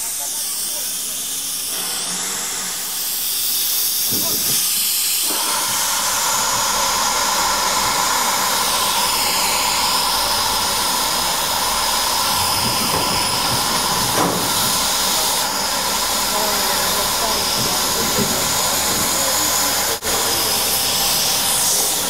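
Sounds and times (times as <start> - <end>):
steam hissing: 0.0 - 22.0.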